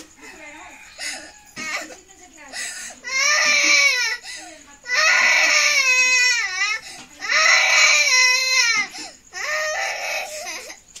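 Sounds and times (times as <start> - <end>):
baby crying: 3.0 - 10.8.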